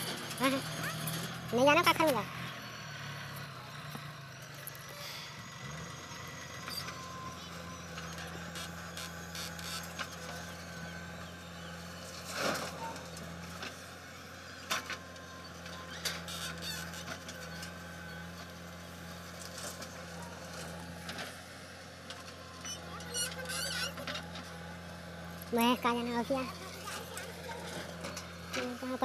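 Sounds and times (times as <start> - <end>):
backhoe digging soil: 0.0 - 29.0
diesel engines running: 0.0 - 29.0.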